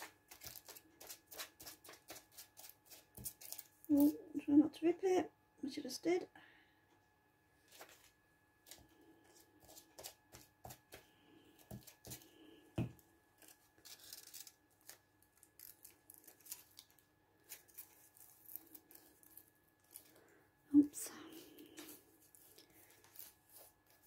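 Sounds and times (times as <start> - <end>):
pages being leafed through: 7.6 - 8.8, 13.4 - 20.2
paper rustling and crackling: 7.6 - 8.8.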